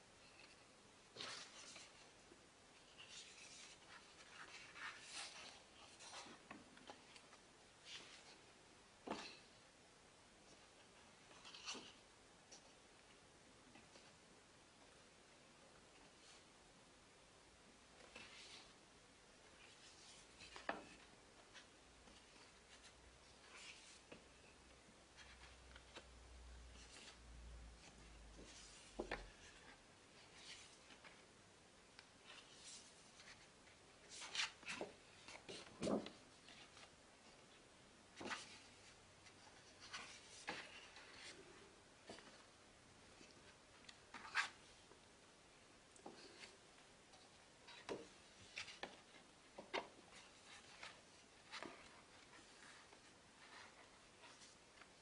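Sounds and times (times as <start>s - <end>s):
paper pages rustling: 0.2s - 2.2s, 2.8s - 8.4s.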